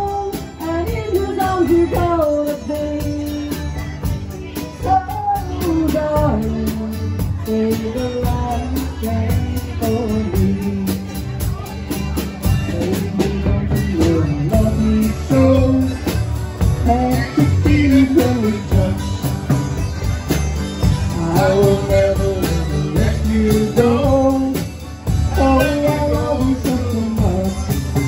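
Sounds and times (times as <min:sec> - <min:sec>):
electric bass: 0:00.0 - 0:28.0
strummed acoustic guitars: 0:00.0 - 0:28.0.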